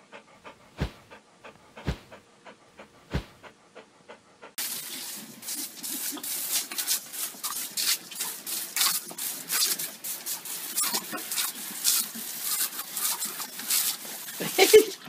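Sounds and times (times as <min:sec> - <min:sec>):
hose spray hissing and splattering: 0:04.6 - 0:15.0
dog biting at water stream: 0:05.7 - 0:14.9.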